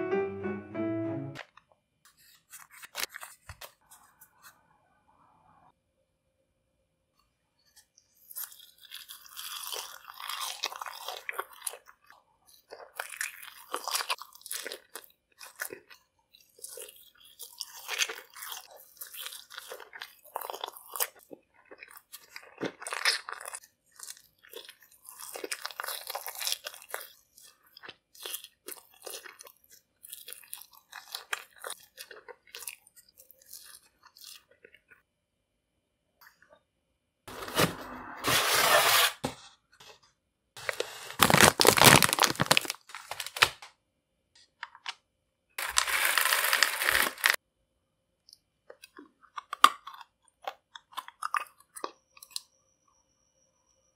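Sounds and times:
biting and chewing marshmallows: 7.8 - 35.0, 40.6 - 43.5, 45.6 - 47.4, 48.3 - 52.6.

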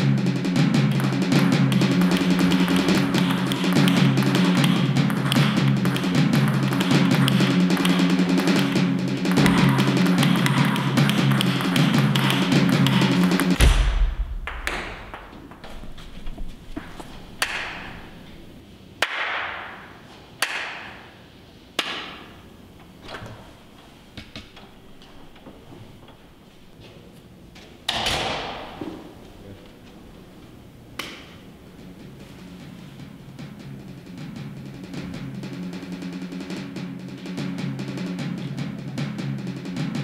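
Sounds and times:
table tennis ball hits: 0.6 - 16.0, 16.8 - 18.4, 19.0 - 21.1, 21.8 - 22.4.

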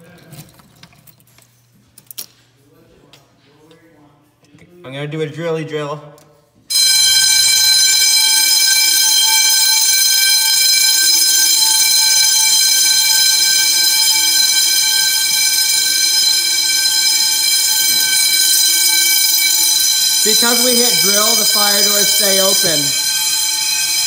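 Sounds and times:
fire alarm bells ringing: 6.7 - 24.0.

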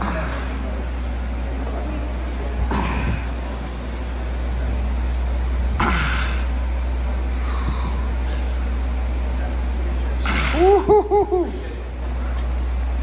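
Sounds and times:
steady low hum: 0.0 - 13.0
man grunting with effort: 5.8 - 6.5, 10.2 - 11.8.

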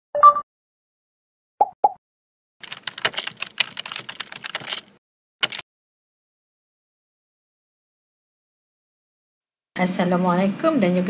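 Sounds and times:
keyboard typing clicks: 2.6 - 5.6.

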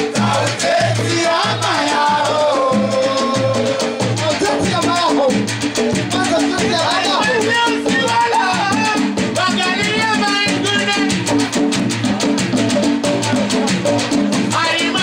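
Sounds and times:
bass: 0.0 - 15.0
steady drum beat: 0.0 - 15.0
person singing: 0.2 - 5.3, 14.5 - 15.0.

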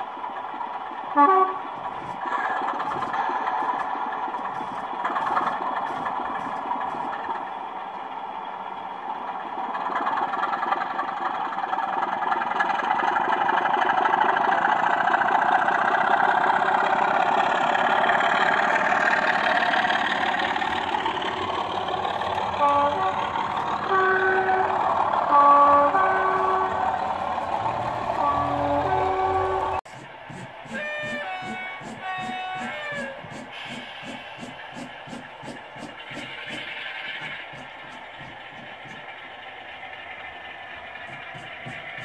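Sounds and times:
model diesel engine sound: 0.0 - 42.0
two-tone horn blasts: 1.1 - 1.7, 22.5 - 27.0, 28.1 - 33.8.

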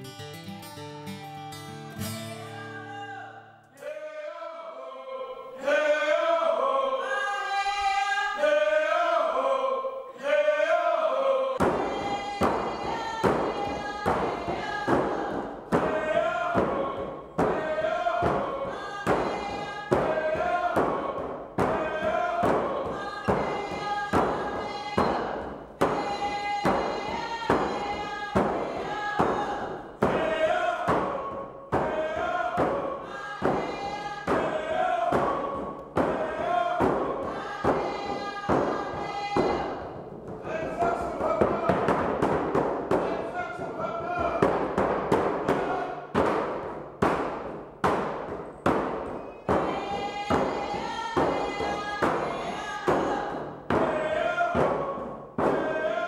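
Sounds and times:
acoustic guitar music: 0.0 - 3.7
group of voices singing: 2.5 - 56.0
steady hand drum beat: 11.6 - 55.9.

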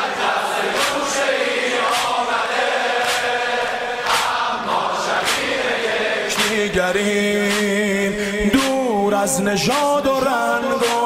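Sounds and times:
slow steady beat: 0.1 - 11.0
man singing devotional song: 5.6 - 11.0.

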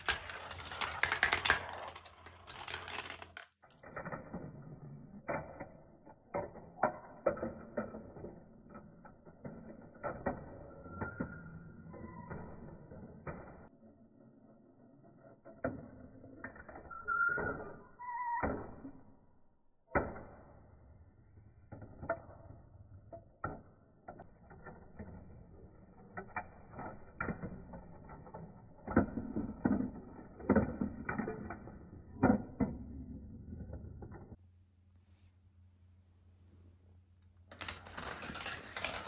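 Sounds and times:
marbles clicking and clacking: 0.0 - 13.5, 37.5 - 39.0
marbles rolling on plastic track: 0.0 - 17.9, 21.7 - 34.4, 37.5 - 39.0.

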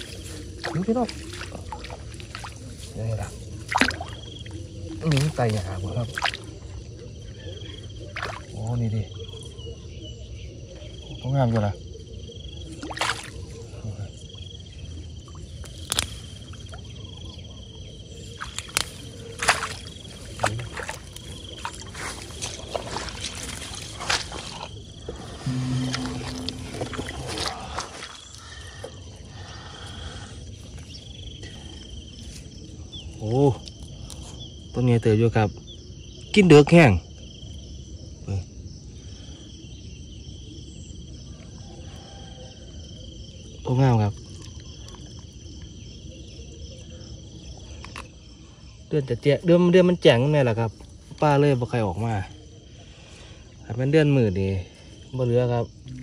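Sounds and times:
water sloshing and splashing: 0.0 - 7.3, 7.9 - 8.8, 12.6 - 13.7, 15.2 - 17.2, 18.1 - 29.2
insect trilling: 0.0 - 36.9.

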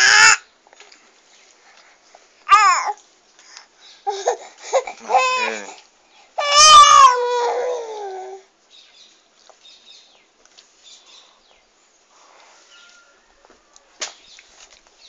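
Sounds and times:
toddler calling: 0.0 - 0.5, 2.5 - 3.0, 6.4 - 8.5
faint bird chirps: 8.7 - 14.5.

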